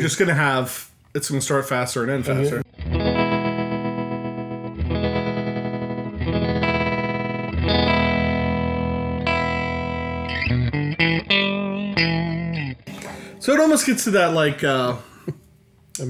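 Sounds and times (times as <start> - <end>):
electric guitar chords with tremolo: 2.5 - 13.4.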